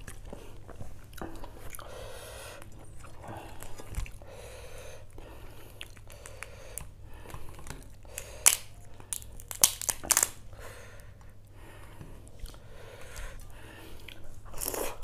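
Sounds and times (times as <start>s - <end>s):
prawn shell crackling: 7.6s - 10.4s.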